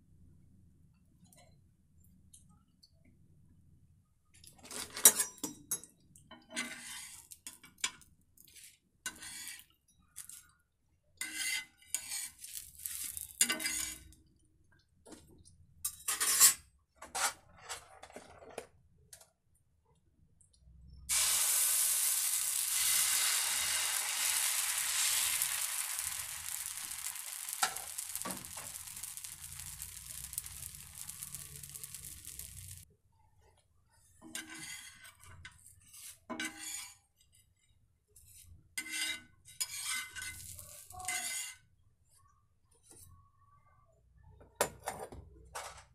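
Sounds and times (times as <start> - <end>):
utensils scraping on a griddle: 6.4 - 7.9, 8.5 - 9.8, 11.2 - 14.2, 15.9 - 17.4, 21.1 - 32.8, 34.2 - 37.0, 38.3 - 41.7
batter sizzling on hot griddle: 11.2 - 14.2, 21.1 - 32.9, 39.6 - 41.4.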